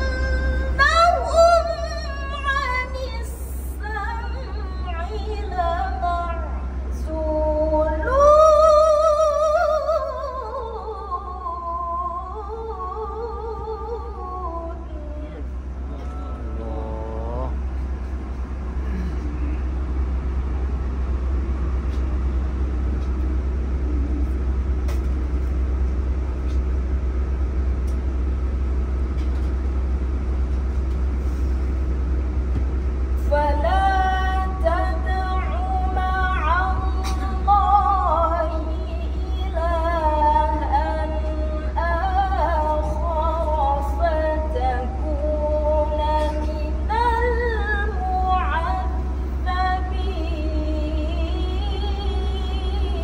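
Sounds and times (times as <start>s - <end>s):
woman reciting melodically: 0.0s - 16.5s, 33.2s - 53.0s
bus engine rumble: 0.0s - 53.0s
steady low hum: 0.0s - 53.0s.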